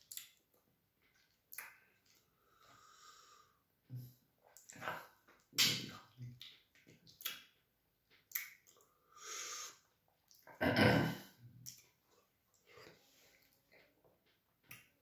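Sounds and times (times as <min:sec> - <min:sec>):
wet smacking and sucking mouth sounds: 0:04.5 - 0:07.5, 0:08.2 - 0:10.5.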